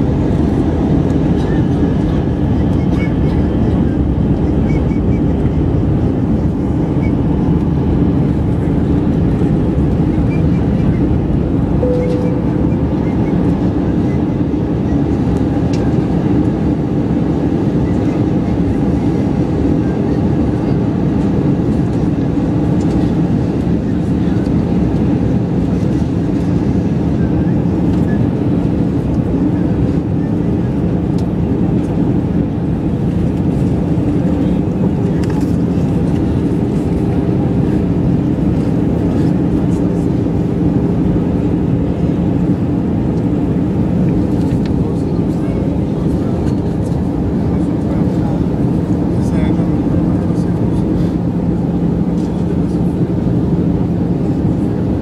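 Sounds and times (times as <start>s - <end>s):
faint low drone: 0.0s - 15.9s
airplane cabin engine rumble: 0.0s - 55.0s.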